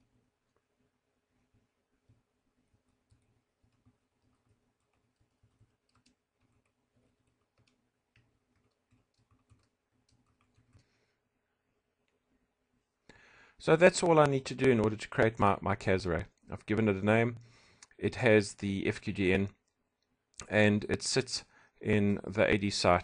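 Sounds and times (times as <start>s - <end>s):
computer keyboard typing: 2.1s - 10.9s.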